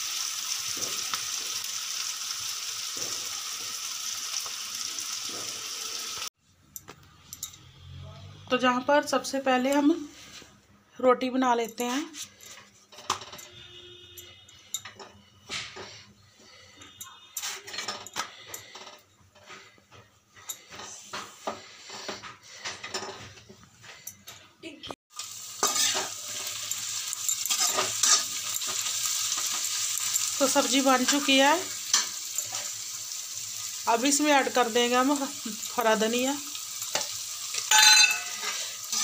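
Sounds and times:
food sizzling in a pan: 0:00.0 - 0:06.4, 0:25.1 - 0:39.0
metal spoon scraping a pan: 0:11.9 - 0:24.0, 0:25.6 - 0:32.9, 0:36.8 - 0:39.0
utensils clicking and scraping: 0:25.6 - 0:32.8.

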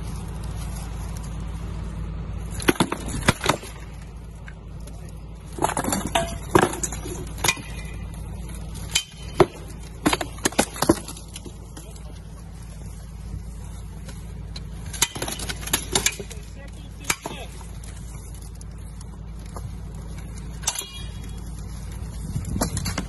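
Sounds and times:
swords clashing against shields: 0:05.6 - 0:08.1, 0:08.8 - 0:12.0, 0:14.8 - 0:17.7, 0:20.6 - 0:21.4.

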